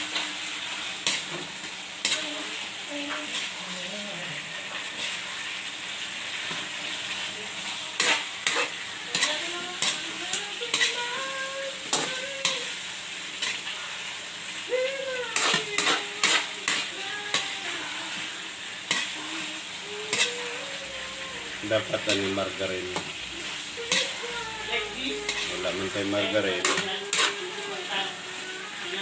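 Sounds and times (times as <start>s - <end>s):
chicken sizzling in a wok: 0.0s - 29.0s
metal spatula scraping wok: 0.9s - 5.5s, 8.0s - 14.2s, 15.2s - 17.6s, 18.6s - 20.8s, 21.8s - 28.1s.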